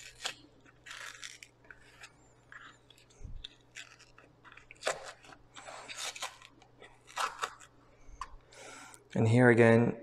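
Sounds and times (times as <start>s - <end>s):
paperboard carton tearing: 0.0s - 2.1s, 3.7s - 7.7s.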